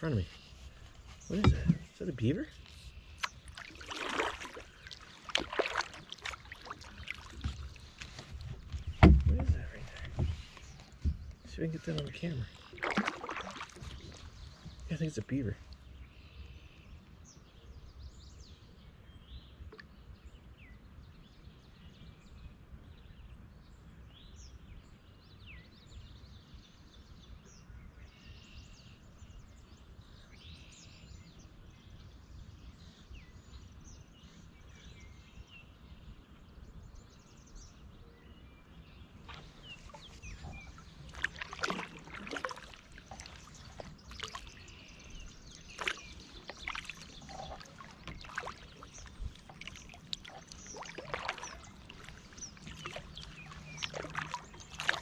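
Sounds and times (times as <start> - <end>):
small birds chirping: 0.0 - 22.4, 28.7 - 55.0
paddle splashing in water: 0.3 - 15.9, 39.1 - 55.0.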